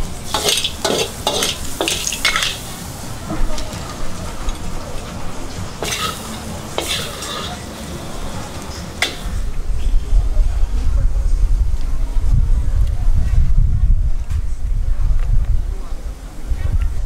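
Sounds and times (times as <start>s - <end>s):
sauce sizzling in wok: 0.0s - 3.3s, 5.8s - 9.4s
metal spatula scraping wok: 0.2s - 3.0s, 5.7s - 9.5s.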